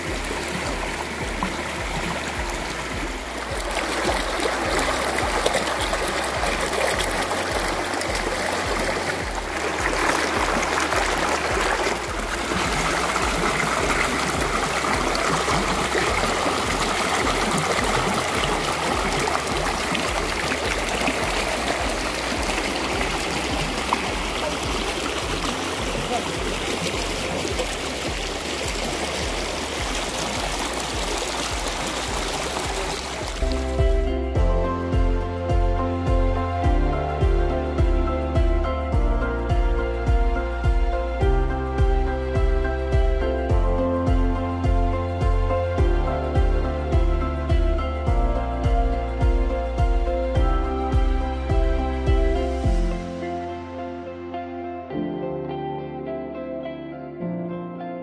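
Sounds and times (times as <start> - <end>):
stream flowing over stones: 0.0 - 34.3.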